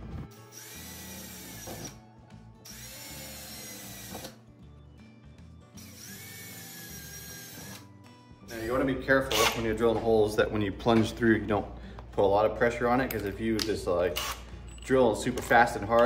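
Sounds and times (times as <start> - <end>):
power drill boring into metal: 5.8 - 7.8, 9.3 - 9.6, 14.2 - 14.4.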